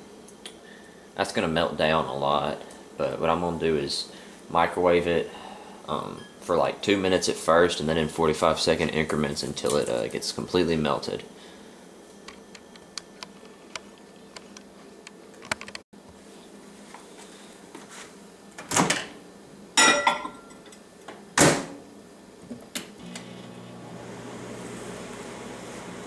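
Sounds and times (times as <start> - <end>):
microwave humming: 18.4 - 26.0.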